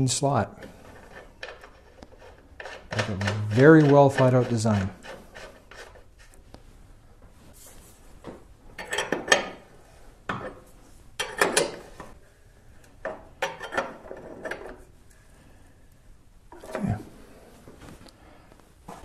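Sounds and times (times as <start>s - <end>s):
metal wrench clinking and scraping: 8.8s - 9.6s, 11.2s - 11.8s, 13.4s - 14.7s.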